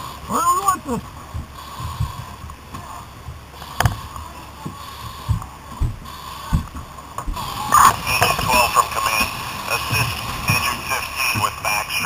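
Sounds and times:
steady hum: 0.0s - 12.0s
thumps against helmet camera: 5.3s - 7.4s.

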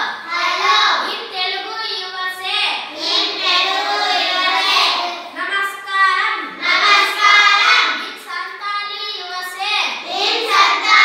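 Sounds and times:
children chanting in unison: 0.0s - 1.2s, 2.8s - 5.4s, 6.4s - 8.2s, 9.9s - 11.0s.

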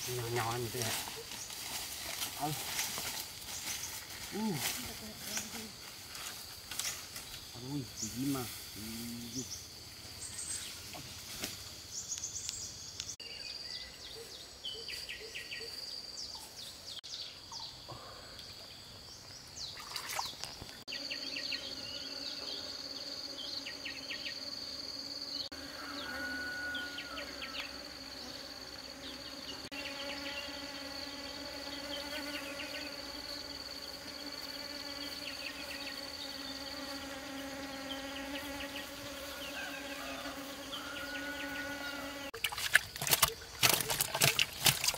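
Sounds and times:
bee buzzing: 0.0s - 9.8s, 20.8s - 42.4s
high insect whine: 0.0s - 13.8s, 17.5s - 44.9s.

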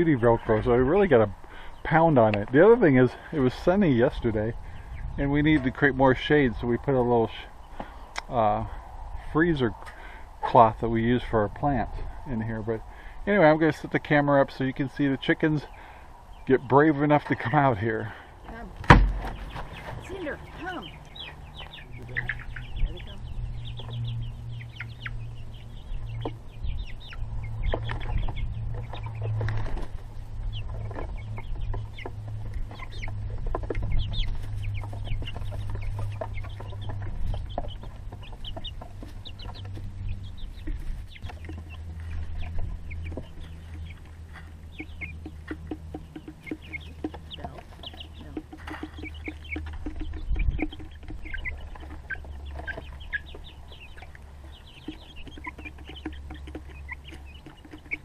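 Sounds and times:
chickens clucking: 0.0s - 58.0s
steady low hum: 17.6s - 58.0s
sharp knock: 18.8s - 19.4s.

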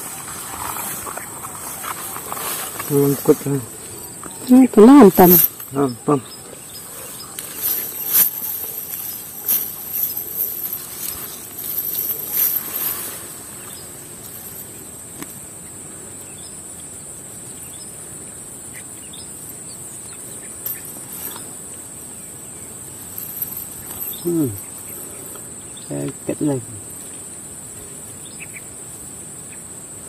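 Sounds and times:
insects droning: 0.0s - 30.0s
rustles and knocks: 7.3s - 15.4s.

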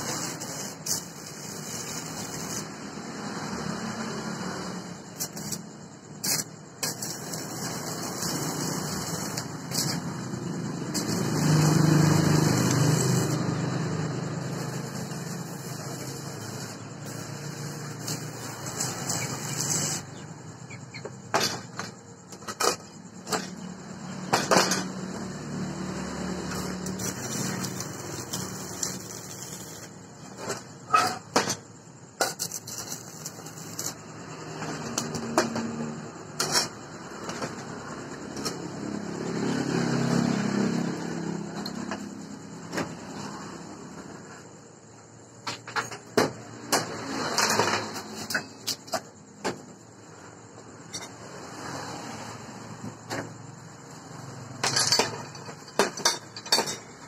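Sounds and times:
welding arc crackling: 0.0s - 3.2s, 5.1s - 20.1s, 26.5s - 30.0s, 32.3s - 34.0s
steel parts clanking on workbench: 30.4s - 34.0s, 54.6s - 57.0s.

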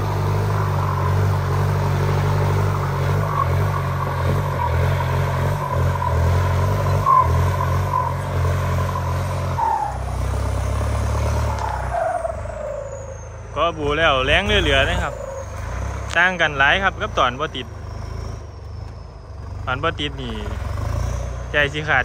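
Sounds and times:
tractor diesel engine under load: 0.0s - 22.0s
turbo whistle: 5.6s - 13.6s.

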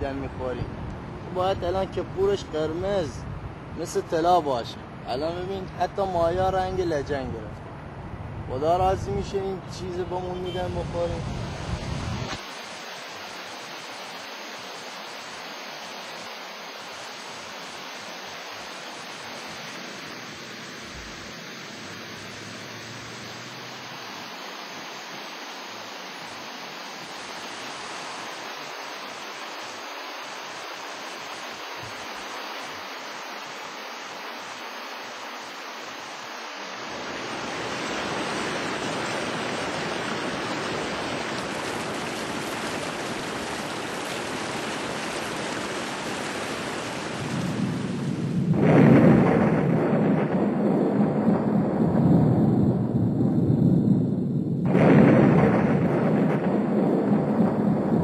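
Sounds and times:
flowing water rushing: 11.2s - 48.3s.

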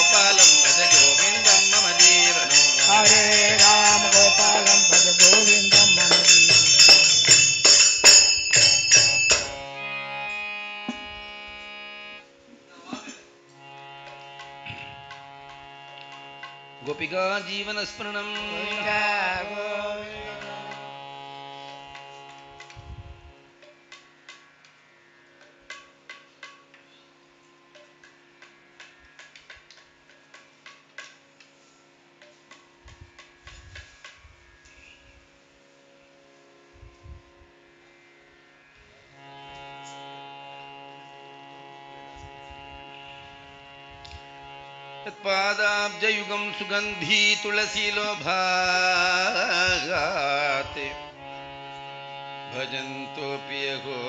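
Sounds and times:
man singing: 0.0s - 7.4s, 16.8s - 21.0s, 45.0s - 51.2s, 52.5s - 54.0s
harmonium drone: 0.0s - 54.0s.

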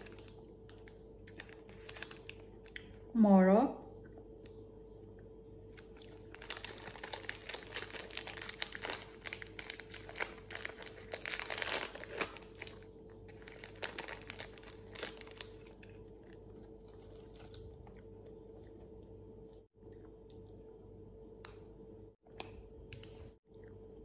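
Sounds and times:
plastic wrapper crinkling: 0.0s - 2.8s, 5.8s - 16.0s.

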